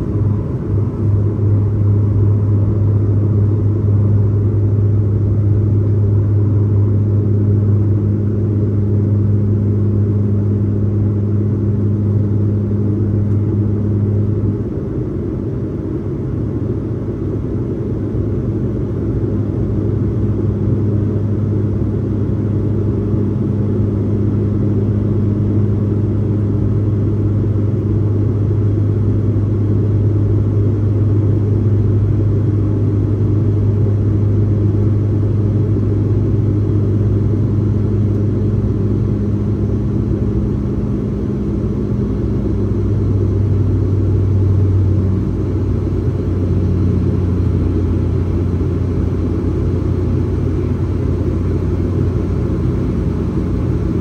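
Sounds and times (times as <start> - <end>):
airplane cabin drone: 0.0 - 54.0.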